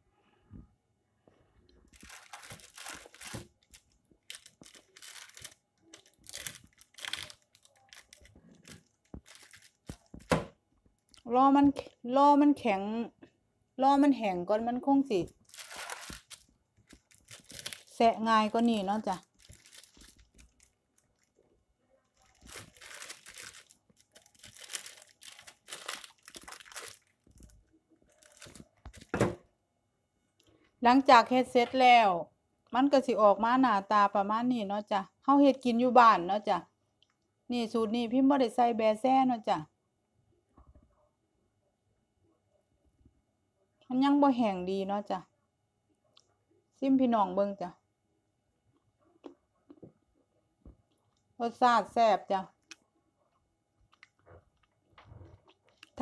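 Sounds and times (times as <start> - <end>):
brittle crunching: 1.9 - 10.3, 15.3 - 18.0, 19.2 - 21.4, 22.2 - 29.1
paper crinkling: 1.9 - 10.3, 15.2 - 21.4, 22.2 - 29.2.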